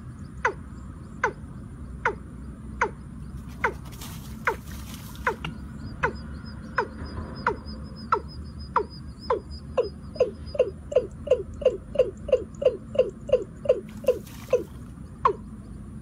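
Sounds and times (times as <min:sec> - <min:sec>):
bird calling: 0:00.0 - 0:16.0.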